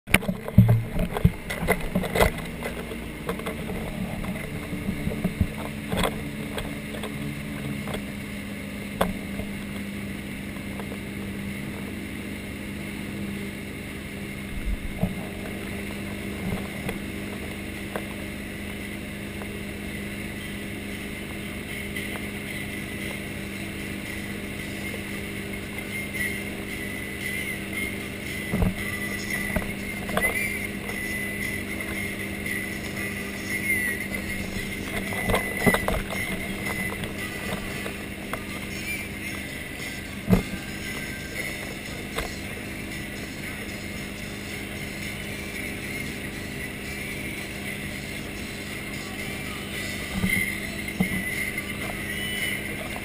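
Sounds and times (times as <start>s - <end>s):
boat engine droning: 0.0s - 53.0s
rushing wake water: 0.1s - 53.0s
wind: 0.1s - 53.0s.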